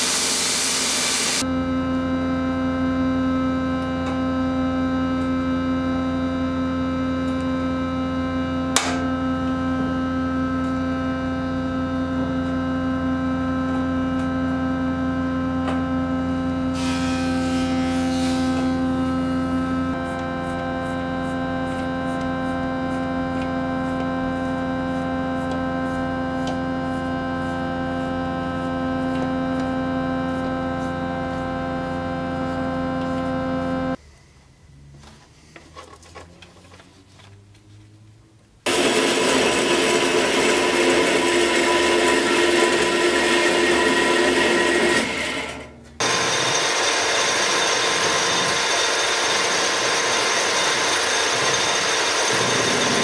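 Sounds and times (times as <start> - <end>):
steady hum with held tones: 0.9 - 34.7
faint handling sounds: 34.0 - 38.0
metal lathe cutting steel: 38.7 - 53.0.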